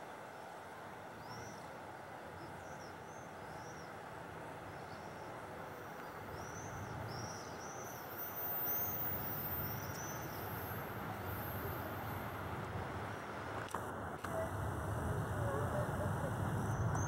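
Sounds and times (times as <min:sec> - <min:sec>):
bird chirping: 0:02.4 - 0:04.0, 0:04.7 - 0:12.2.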